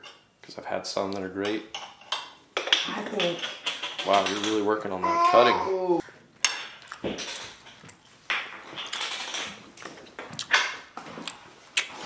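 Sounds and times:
cutlery clatter: 1.4s - 4.8s, 6.4s - 10.9s.

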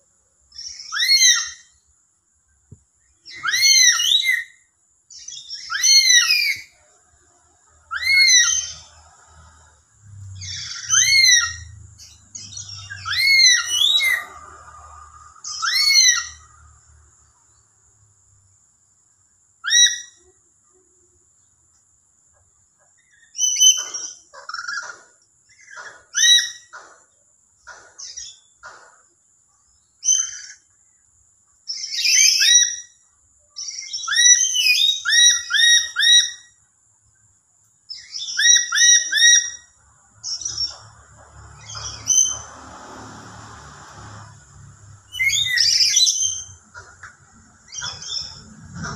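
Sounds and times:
parrot shrill whistled calls: 0.6s - 1.7s, 3.3s - 4.6s, 5.2s - 6.8s, 7.9s - 8.9s, 10.4s - 14.4s, 15.4s - 16.5s, 19.6s - 20.2s, 23.2s - 24.8s, 26.1s - 26.7s, 31.7s - 33.0s, 33.6s - 36.5s, 38.0s - 39.7s, 45.1s - 46.6s
rough rushing noise: 40.8s - 48.9s
low rumble: 47.2s - 48.9s.

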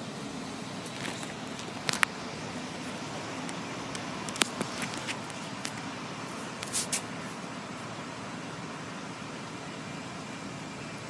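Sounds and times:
car cabin noise: 0.0s - 11.0s
traffic noise: 0.0s - 11.0s.

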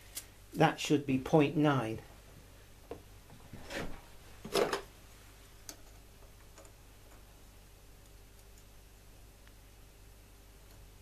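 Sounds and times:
handling scrapes: 3.5s - 4.8s.

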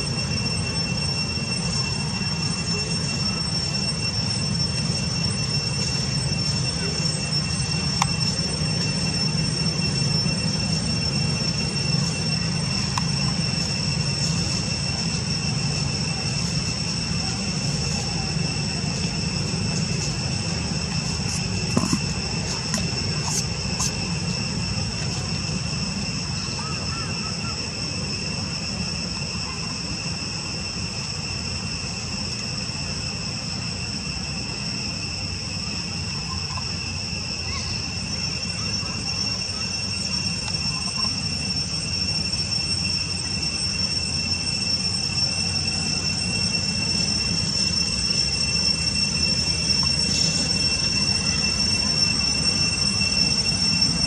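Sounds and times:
insects droning: 0.0s - 54.0s.

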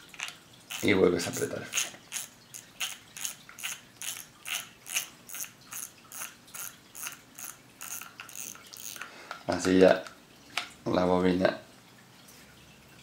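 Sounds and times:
fishing reel drag clicking: 0.2s - 9.1s.

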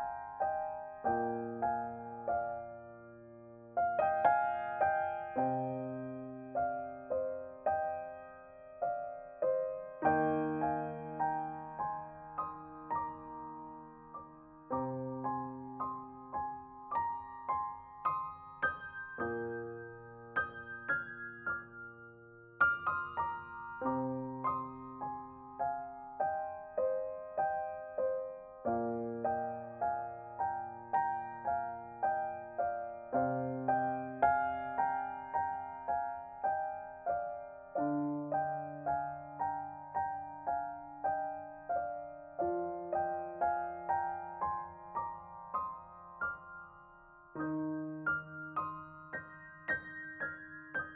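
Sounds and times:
gentle piano melody: 0.0s - 50.9s.

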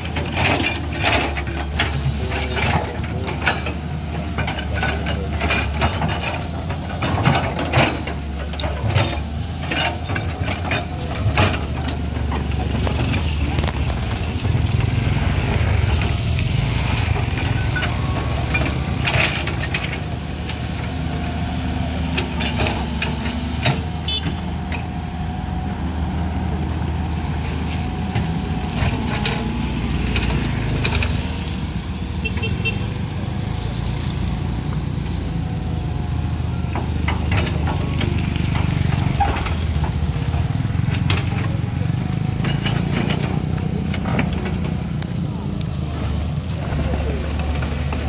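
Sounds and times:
clanks and knocks: 0.0s - 25.1s, 27.6s - 48.0s
excavator diesel engine: 0.0s - 48.0s
motorcycles passing: 11.9s - 24.2s.

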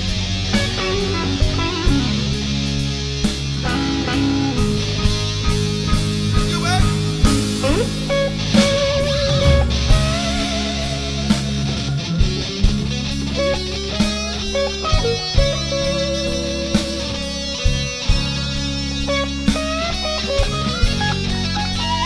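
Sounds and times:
electric guitar lead: 0.0s - 22.0s
rock backing track: 0.0s - 22.0s
drum hits: 5.1s - 13.0s.

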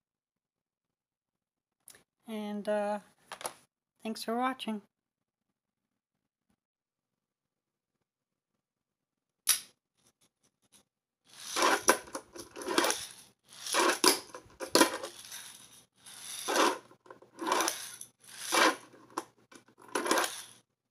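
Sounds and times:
small wheels rolling: 11.3s - 20.6s.

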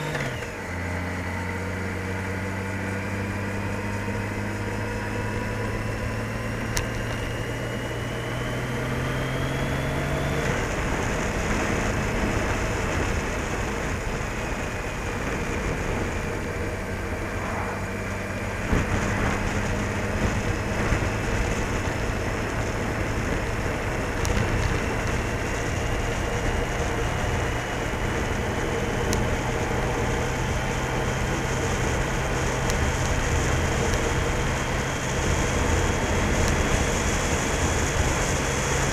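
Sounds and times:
motorcycle engine running: 0.0s - 38.9s
road noise: 0.0s - 38.9s
wind: 0.0s - 38.9s.

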